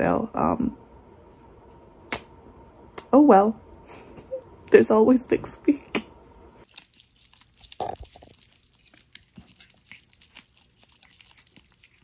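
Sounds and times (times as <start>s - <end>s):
kittens chewing food: 6.6s - 12.0s.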